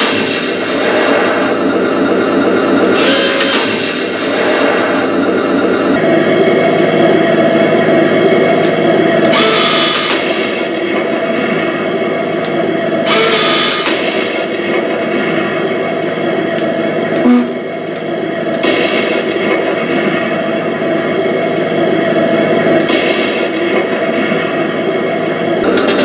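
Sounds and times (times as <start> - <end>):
short blip: 17.2 - 17.7
simulated tank engine from small speaker: 17.2 - 17.8
noisy bursts: 17.2 - 18.0.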